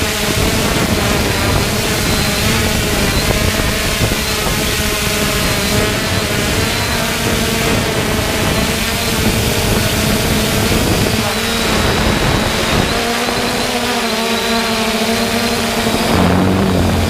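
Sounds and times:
drone motors whirring: 0:00.0 - 0:17.0
rush of air: 0:15.9 - 0:17.0.

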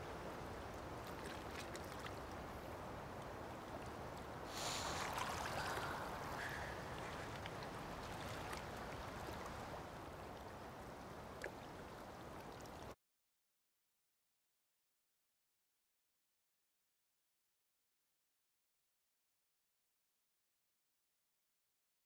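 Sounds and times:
rush of water noise: 0:00.0 - 0:13.0
water rippling and lapping: 0:00.0 - 0:13.0.

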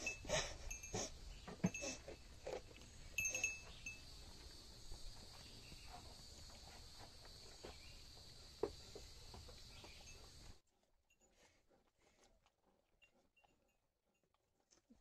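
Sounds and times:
small collar bell ringing: 0:00.0 - 0:02.1, 0:03.1 - 0:04.2
goats chewing watermelon: 0:00.0 - 0:10.6, 0:11.3 - 0:13.5.

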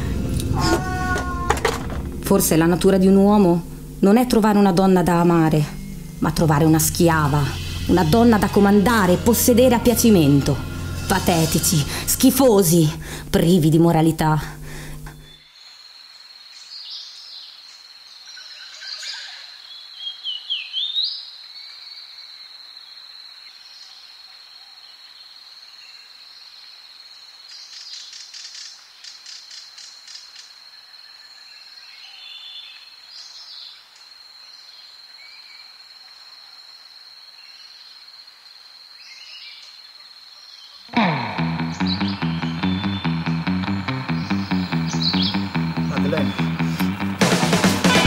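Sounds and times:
birds chirping: 0:40.9 - 0:48.0.

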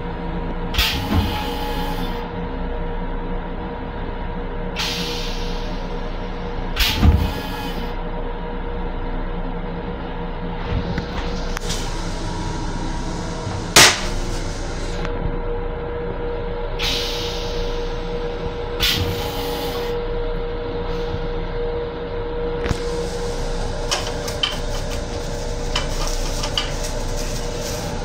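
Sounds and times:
train rumble: 0:10.5 - 0:15.4, 0:22.7 - 0:28.0.

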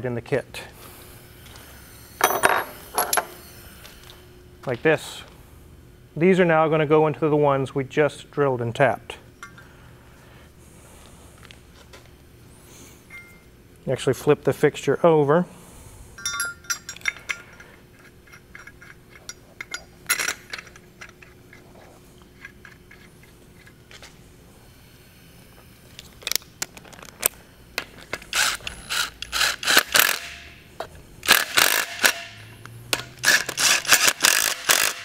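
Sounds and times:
light metal clinks: 0:16.2 - 0:20.3
ratchet clicking: 0:28.3 - 0:30.5, 0:31.2 - 0:32.3, 0:33.0 - 0:35.0.

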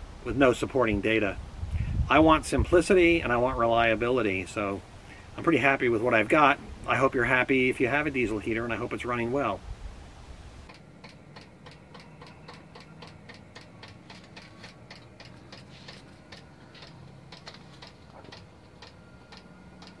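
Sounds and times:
fuel pump ticking: 0:10.7 - 0:20.0.

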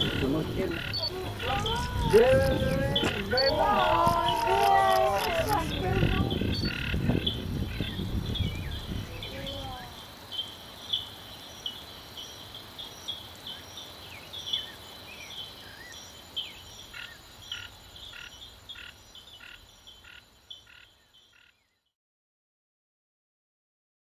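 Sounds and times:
second frog calling: 0:00.0 - 0:08.0, 0:16.8 - 0:21.7
frogs calling: 0:00.0 - 0:21.8.

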